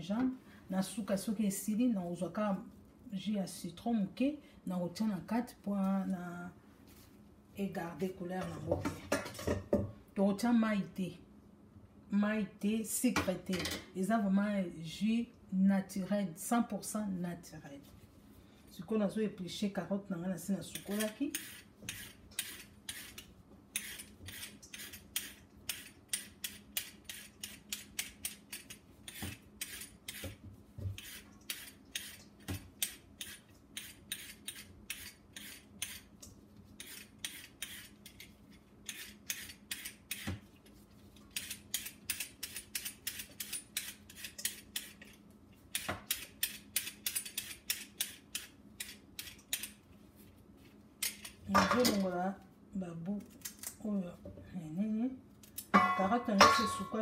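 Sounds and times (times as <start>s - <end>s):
faint steady hum: 0.0s - 57.0s
peeler scraping carrot: 20.7s - 36.1s, 36.8s - 40.4s, 41.3s - 49.7s.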